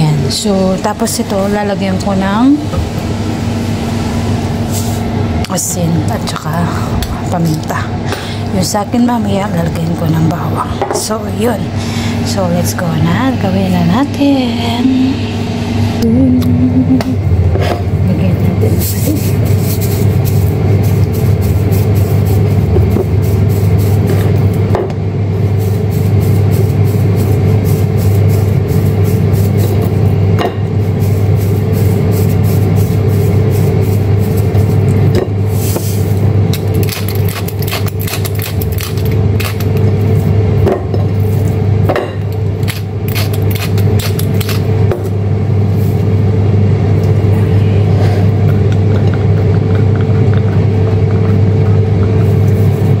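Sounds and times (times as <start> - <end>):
air fryer fan humming: 0.0 - 53.0
plastic salt shaker rattling: 36.6 - 39.7.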